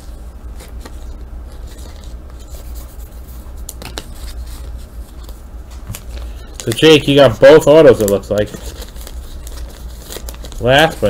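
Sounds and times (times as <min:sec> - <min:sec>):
foil pack rustling: 0:00.0 - 0:11.0
steady low hum: 0:00.0 - 0:11.0
foil crinkles: 0:03.6 - 0:11.0.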